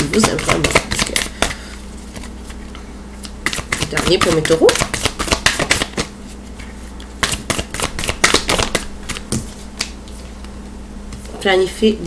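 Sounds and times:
cards being shuffled: 0:02.1 - 0:02.6.

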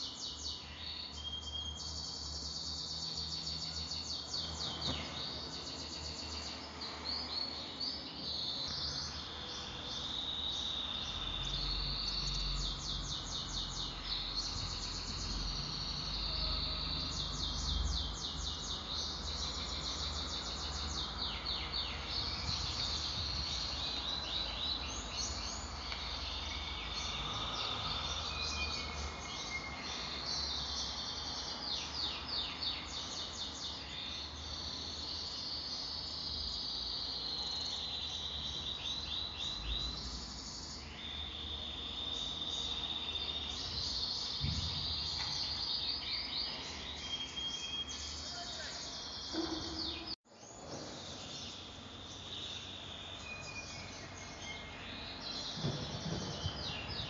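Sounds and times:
songbirds chirping and trilling: 0:00.0 - 0:57.0.

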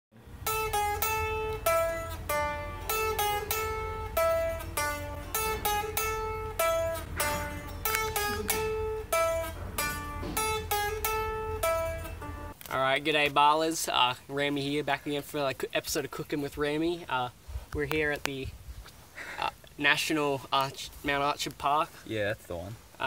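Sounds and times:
plucked guitar melody: 0:00.2 - 0:12.6
steady low hum: 0:00.2 - 0:12.6.

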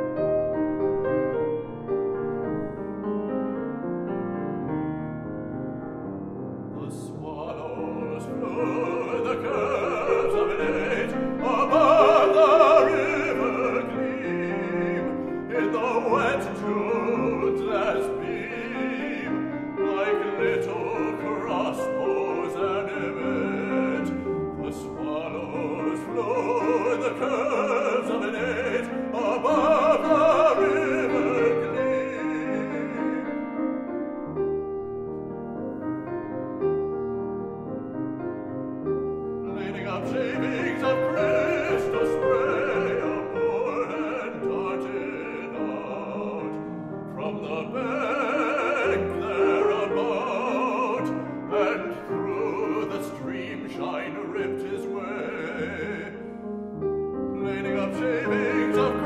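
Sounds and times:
grand piano accompaniment: 0:00.0 - 0:59.0
baritone singing with vibrato: 0:06.7 - 0:33.6, 0:39.4 - 0:56.4, 0:57.4 - 0:59.0.

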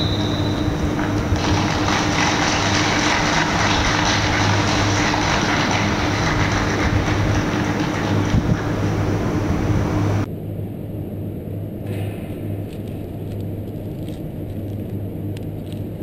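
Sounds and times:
ship hull rumbling and rattling: 0:00.0 - 0:10.3
constant low hum: 0:00.0 - 0:16.0.

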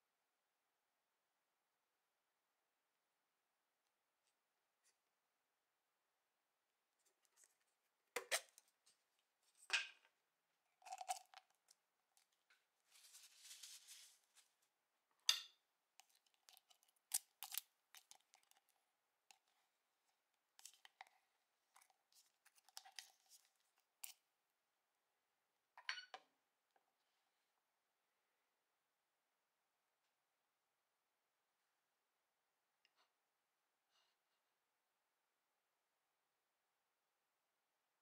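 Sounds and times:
short rustling: 0:12.8 - 0:14.6.

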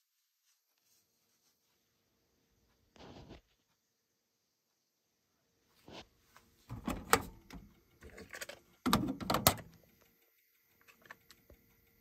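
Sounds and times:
cassette deck plastic clicks: 0:06.7 - 0:09.8
faint ticks: 0:09.6 - 0:12.0.

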